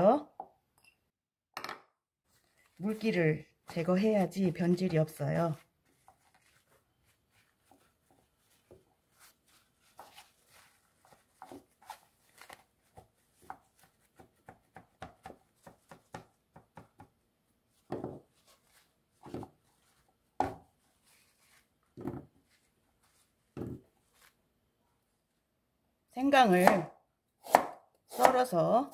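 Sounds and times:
paper towel crinkling: 2.2 - 14.2, 17.7 - 24.5.

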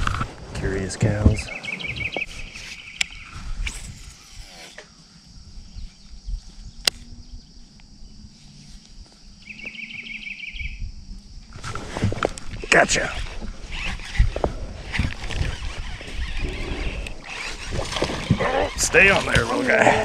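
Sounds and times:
bird trilling: 1.5 - 3.3, 9.4 - 10.8
reel cranking whir: 13.0 - 19.8.

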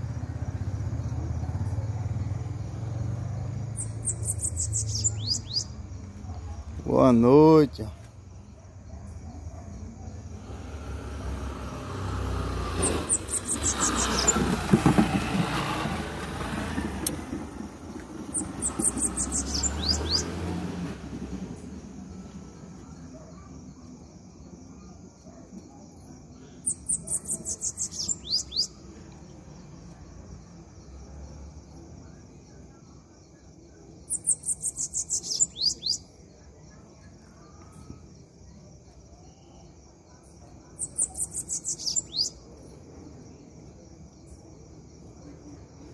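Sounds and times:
motor vehicle passing: 0.0 - 8.1, 10.1 - 23.7
insect trill: 0.0 - 45.9
bird trilling song: 3.7 - 6.6, 12.6 - 14.6, 18.2 - 20.5, 26.4 - 28.8, 34.0 - 36.2, 40.6 - 42.4.

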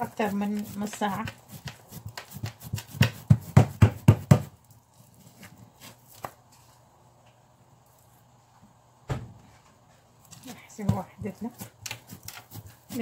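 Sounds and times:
palms slapping dough: 0.0 - 6.5, 10.2 - 13.0.

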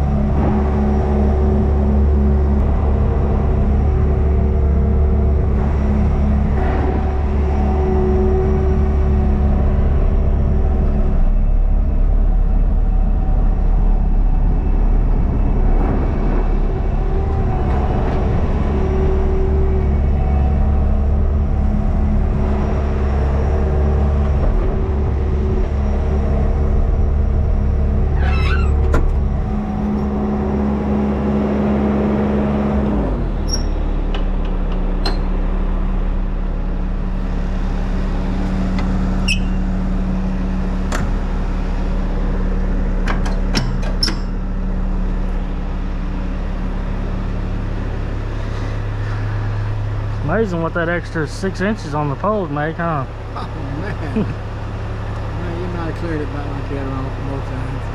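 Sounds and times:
diesel engine running: 0.0 - 57.9
machine squeak: 28.1 - 29.1, 33.4 - 33.8, 39.2 - 39.7, 43.6 - 44.4.

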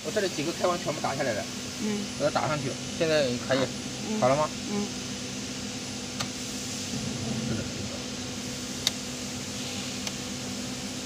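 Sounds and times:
circuit breakers clicking: 8.8 - 9.0.

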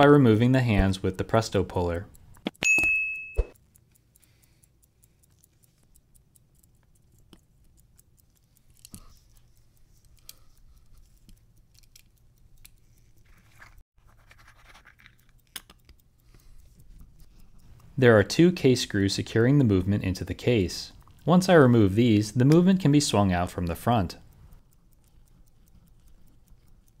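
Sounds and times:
watch case scratching and clicking: 6.9 - 18.0, 25.0 - 27.0.

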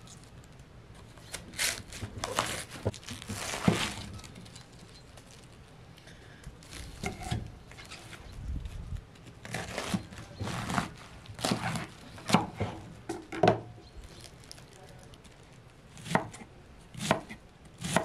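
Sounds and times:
knife crunching through cabbage: 1.2 - 5.6, 9.4 - 12.6.

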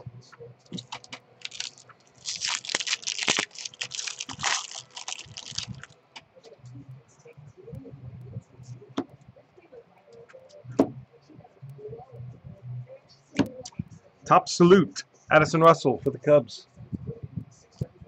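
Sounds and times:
foil wrapper crinkling and tearing: 0.8 - 6.0.

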